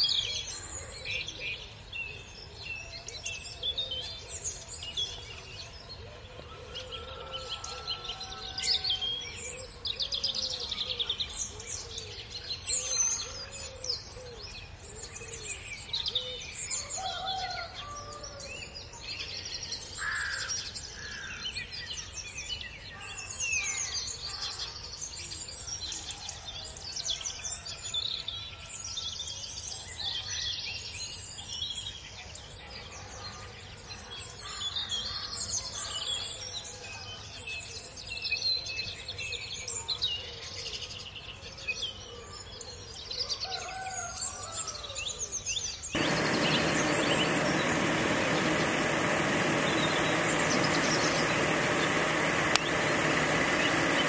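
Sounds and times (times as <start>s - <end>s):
birds chirping and singing: 45.7s - 54.0s.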